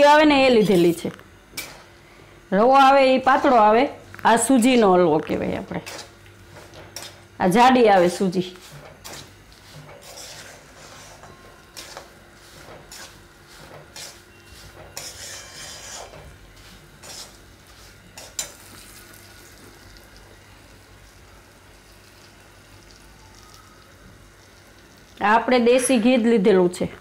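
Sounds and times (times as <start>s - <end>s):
spatula scraping a pan: 5.8s - 7.2s, 8.6s - 18.7s.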